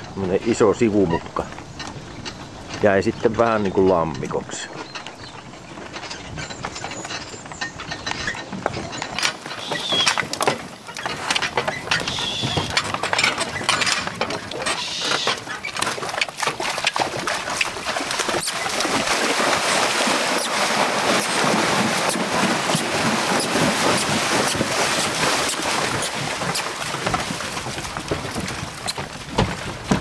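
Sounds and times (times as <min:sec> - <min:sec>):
horse hooves: 0:00.0 - 0:30.0
wagon knocking and rattling: 0:00.0 - 0:30.0
short high squeaks: 0:06.0 - 0:10.2, 0:11.7 - 0:12.8, 0:14.6 - 0:15.7.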